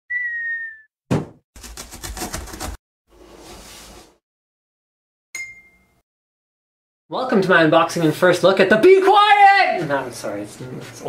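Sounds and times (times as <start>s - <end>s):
thump: 1.1s - 1.4s.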